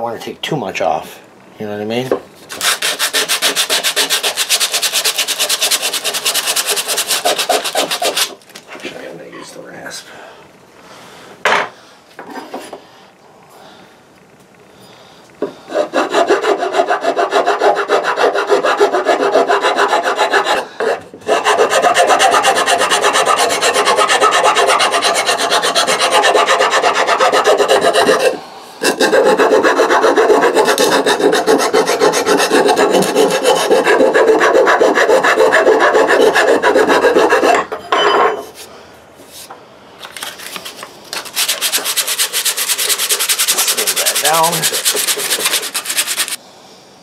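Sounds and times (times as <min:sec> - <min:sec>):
rasp filing wood: 0:02.5 - 0:08.4, 0:15.7 - 0:37.7, 0:41.3 - 0:46.4.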